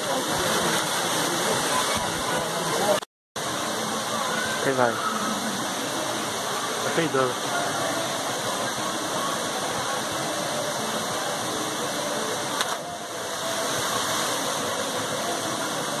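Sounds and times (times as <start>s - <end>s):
waterfall pouring into pool: 0.0s - 16.0s.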